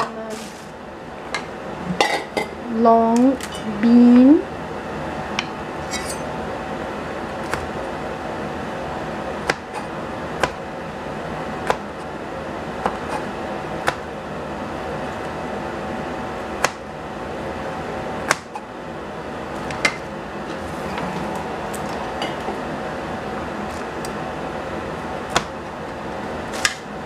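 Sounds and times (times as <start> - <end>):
steady background hum: 0.0 - 27.0
cleaver chopping on plastic board: 10.4 - 10.6, 11.6 - 11.9, 13.8 - 14.1, 18.3 - 18.6, 25.3 - 25.6.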